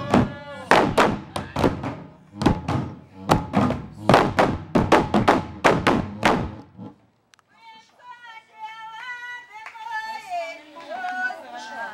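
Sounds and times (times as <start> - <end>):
large drums beaten with sticks: 0.0 - 6.6.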